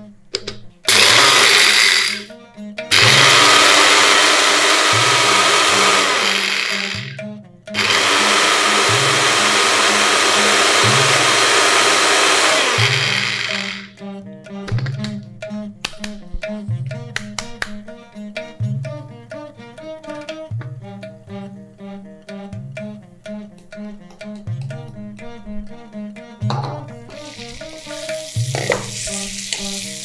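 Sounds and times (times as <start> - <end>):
electric spice grinder whirring: 0.9 - 2.3, 2.9 - 7.2, 7.8 - 14.0, 27.1 - 30.0.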